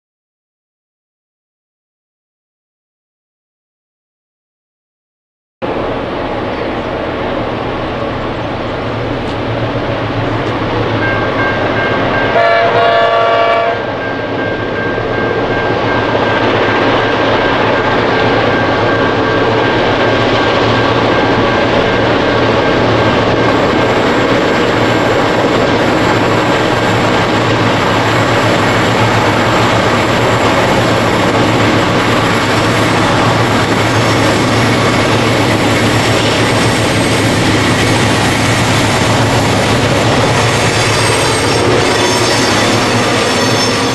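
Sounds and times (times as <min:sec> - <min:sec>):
diesel locomotive engines running: 0:05.6 - 0:43.9
locomotive air horn: 0:12.3 - 0:14.0, 0:40.4 - 0:43.9.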